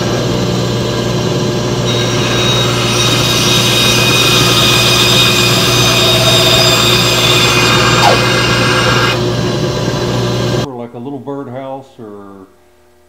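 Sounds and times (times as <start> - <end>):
band saw motor hum: 0.0 - 10.7
saw blade cutting wood: 1.9 - 9.2.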